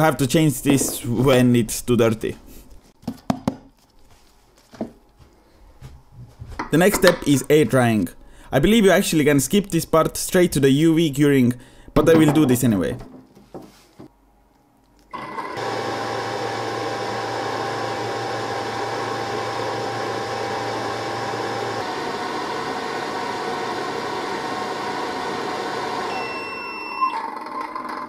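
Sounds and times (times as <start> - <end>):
low motor hum: 15.6 - 26.1
fans blowing air: 15.6 - 26.3.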